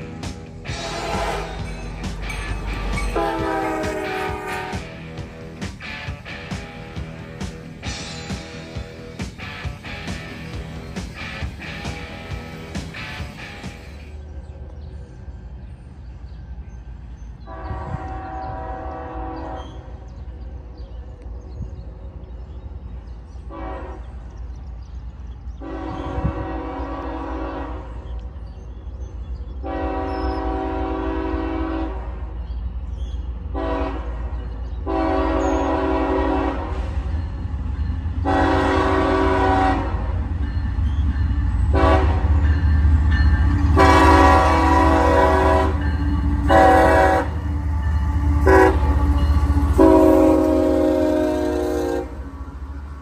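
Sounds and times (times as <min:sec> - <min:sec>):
locomotive engine rumble: 0:00.0 - 0:53.0
train air horn blasts: 0:00.7 - 0:02.0, 0:02.9 - 0:05.1, 0:17.4 - 0:20.0, 0:23.5 - 0:24.3, 0:25.6 - 0:28.1, 0:29.6 - 0:32.4, 0:33.5 - 0:37.1, 0:38.2 - 0:40.2, 0:41.7 - 0:42.7, 0:43.4 - 0:52.5.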